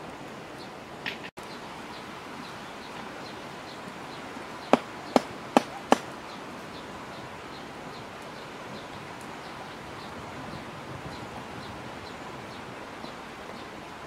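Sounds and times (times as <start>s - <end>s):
knife chopping on board: 5.1s - 6.0s.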